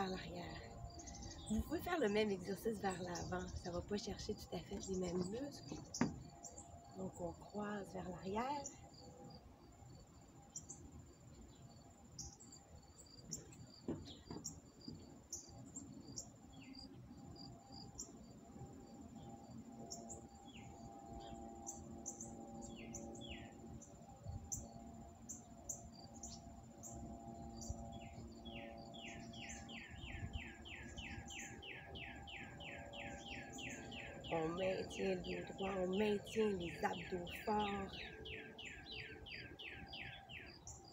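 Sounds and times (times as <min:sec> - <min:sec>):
faint low hum: 0:00.0 - 0:40.9
high insect buzz: 0:08.4 - 0:34.4.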